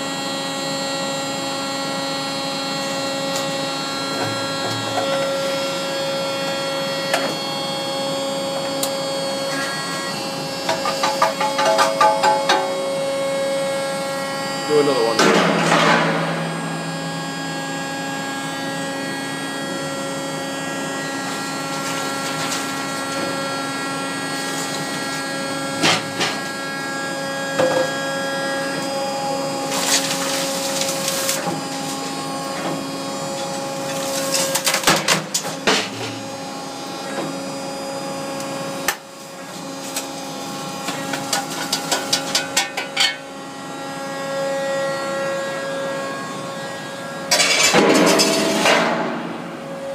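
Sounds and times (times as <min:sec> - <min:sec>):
hydraulic motor and pump hum: 0:00.0 - 0:49.9
blade cracking and crunching metal: 0:29.7 - 0:32.2, 0:33.4 - 0:36.0.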